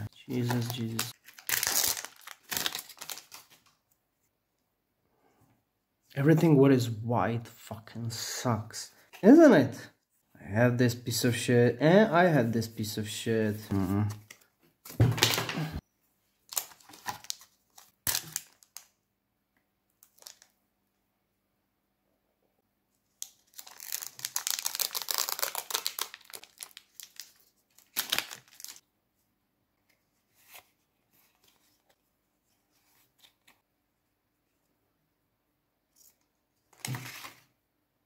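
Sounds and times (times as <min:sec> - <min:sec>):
foil wrapper tearing and crinkling: 0:00.4 - 0:03.6, 0:16.5 - 0:18.9, 0:23.2 - 0:28.8
cards being handled: 0:35.9 - 0:37.5.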